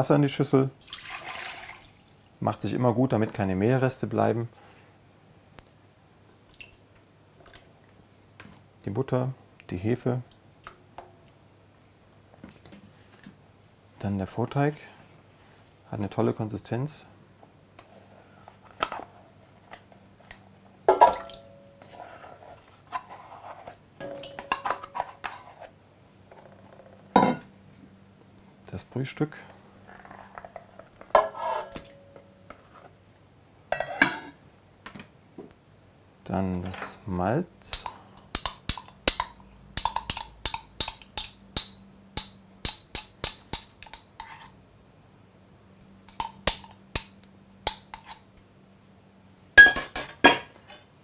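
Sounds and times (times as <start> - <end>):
spoon clinking and scraping bowl: 31.1 - 32.8, 37.7 - 44.6, 46.1 - 48.3
spoon knocking metal bowl: 37.7 - 44.5, 46.1 - 48.2
glass jar clinking: 46.1 - 48.3, 49.6 - 50.2.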